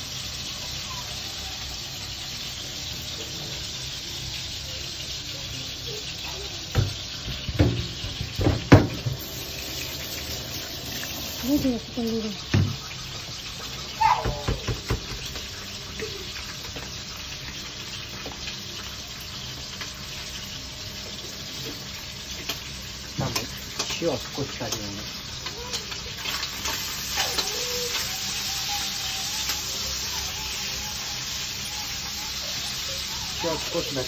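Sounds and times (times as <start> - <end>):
bacon sizzling in a pan: 0.0 - 34.0.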